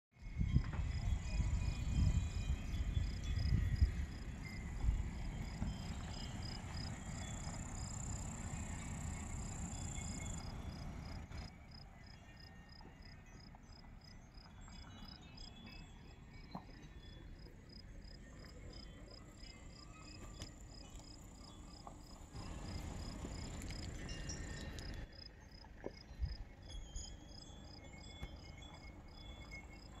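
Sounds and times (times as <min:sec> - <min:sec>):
wind rumble on microphone: 0:00.2 - 0:11.4
high insect trill: 0:00.2 - 0:30.0
insects chirping: 0:00.3 - 0:30.0.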